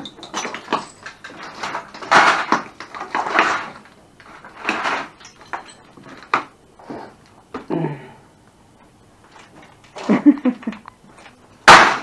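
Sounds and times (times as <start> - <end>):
clattering debris: 0.0 - 6.5, 11.6 - 12.0
video recorder being smashed: 11.6 - 12.0.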